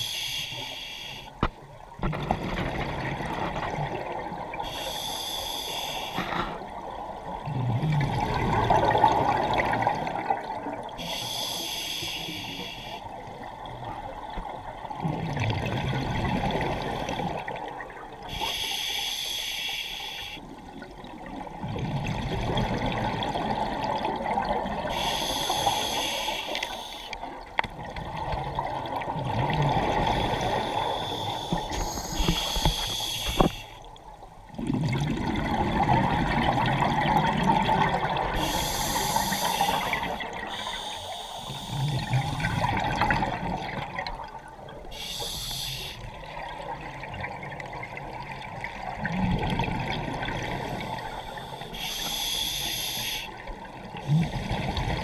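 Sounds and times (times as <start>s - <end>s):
regulator inhale hiss: 0.0s - 1.4s, 4.6s - 6.6s, 11.0s - 13.2s, 18.3s - 20.5s, 24.9s - 27.2s, 30.0s - 33.9s, 38.4s - 42.5s, 44.9s - 46.1s, 50.6s - 53.5s
exhaust bubbles burbling: 34.6s - 38.4s.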